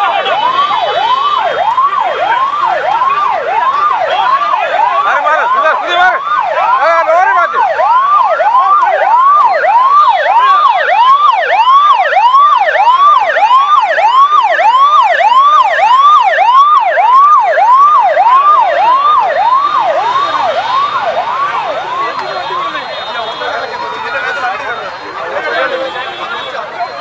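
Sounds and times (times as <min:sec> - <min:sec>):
ambulance siren yelping: 0:00.0 - 0:27.0.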